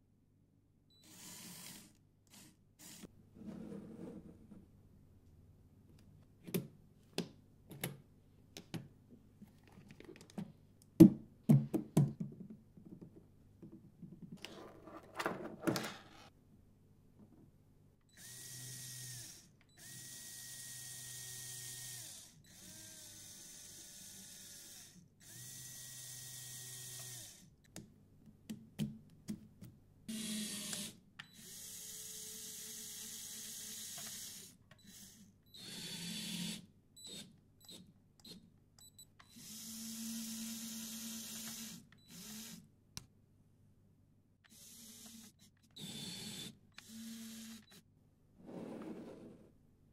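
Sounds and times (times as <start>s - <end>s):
small electric motors whining: 18.2s - 27.5s, 30.1s - 36.6s, 39.3s - 42.6s, 44.5s - 47.8s.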